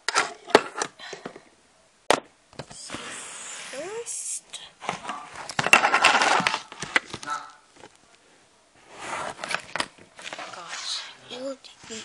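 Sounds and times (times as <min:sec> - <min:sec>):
rustling and scraping: 0:04.8 - 0:08.2, 0:08.8 - 0:12.0.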